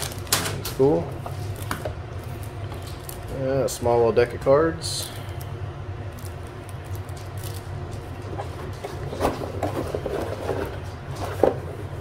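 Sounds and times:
steady low hum: 0.0 - 12.0
cardboard scraping and rubbing: 8.2 - 12.0.

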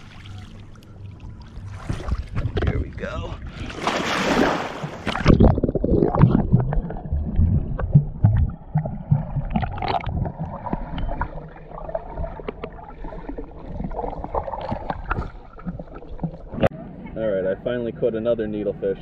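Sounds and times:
muffled underwater rumble: 0.0 - 3.6, 5.1 - 17.1
underwater knocks and clicks: 2.2 - 2.9, 4.8 - 16.7.

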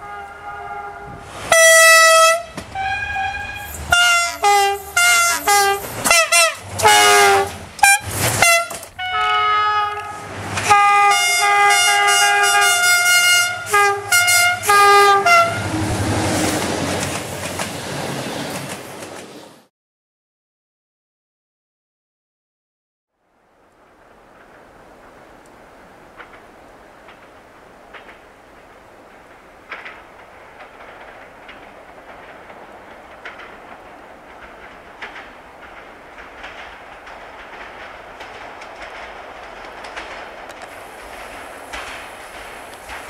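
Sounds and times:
train horn blasts: 0.0 - 16.2
passing train rumble: 0.0 - 19.7, 23.3 - 43.0.

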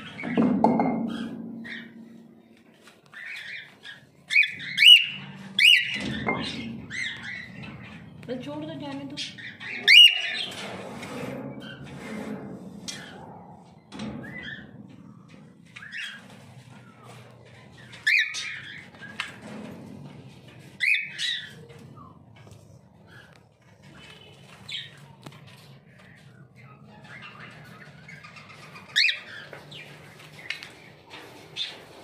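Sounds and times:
cockatiel calling and chirping: 3.1 - 7.4, 9.4 - 10.5, 18.0 - 18.8.

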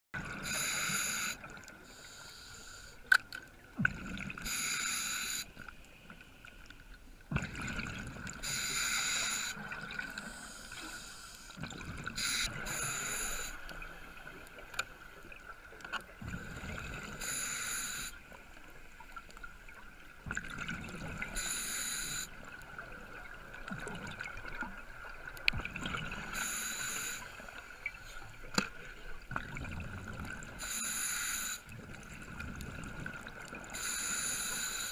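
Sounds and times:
exhaled bubbles underwater: 0.2 - 1.8, 3.7 - 4.7, 7.3 - 10.7, 11.6 - 17.4, 20.0 - 26.6, 29.2 - 30.7, 31.7 - 34.0
regulator hiss: 0.4 - 3.0, 4.5 - 5.6, 8.4 - 11.6, 12.2 - 13.7, 17.2 - 18.2, 21.4 - 22.4, 26.3 - 27.5, 30.6 - 31.7, 33.7 - 34.9.

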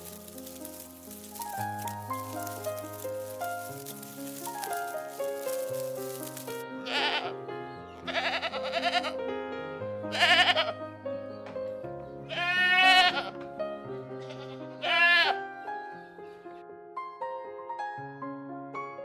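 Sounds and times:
soft background music: 0.0 - 19.0
goats bleating: 6.8 - 7.3, 8.1 - 9.2, 10.1 - 10.8, 12.3 - 13.4, 14.2 - 15.4.

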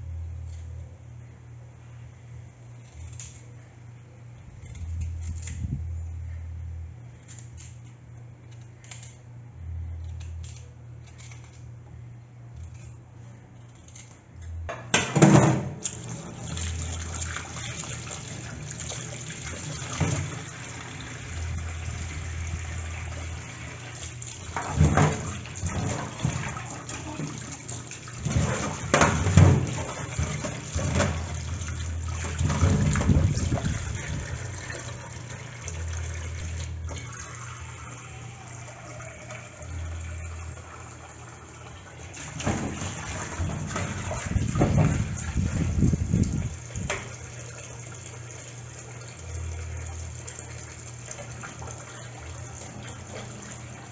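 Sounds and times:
knocks in metal sink: 14.7 - 15.8
tap water running into sink: 15.2 - 53.9.

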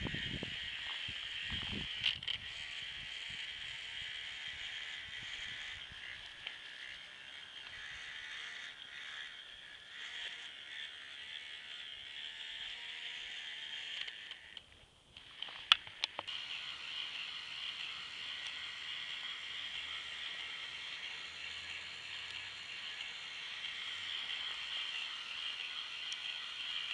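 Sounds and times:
toy electric motor whirring: 0.0 - 26.9
sharp clicks: 13.9 - 16.4.

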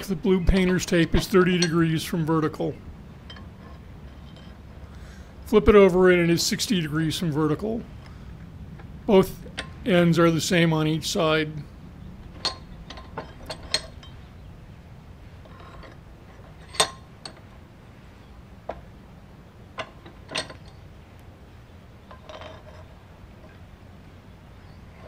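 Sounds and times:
metal clinks and clanks in vise: 0.5 - 2.1, 3.2 - 4.9, 12.2 - 14.3, 15.4 - 17.5, 19.8 - 20.9, 22.0 - 23.6.

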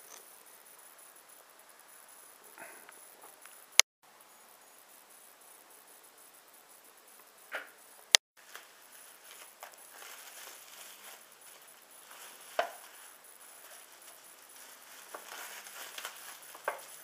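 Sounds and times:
bubble wrap crackle: 8.4 - 17.0
plastic packaging crinkling: 8.4 - 17.0.

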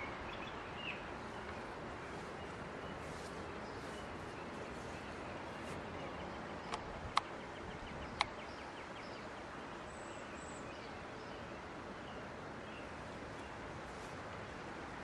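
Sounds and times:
outdoor background hiss: 0.0 - 15.0
sharp clicks: 6.7 - 7.3, 8.2 - 8.4.

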